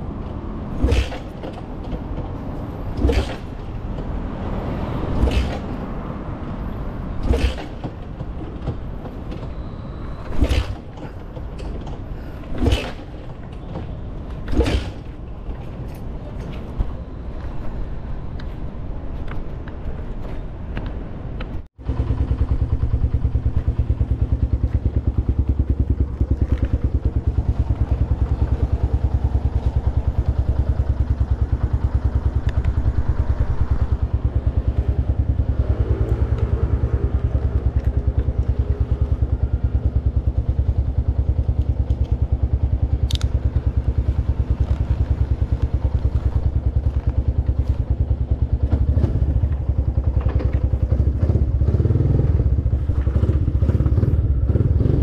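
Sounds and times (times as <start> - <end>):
motorcycle engine running: 21.8 - 55.0
sharp click: 43.0 - 43.4.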